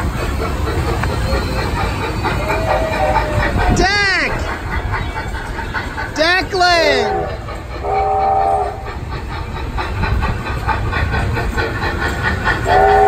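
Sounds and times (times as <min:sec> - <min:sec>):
train whistle blast: 0:07.8 - 0:08.8, 0:12.7 - 0:13.0.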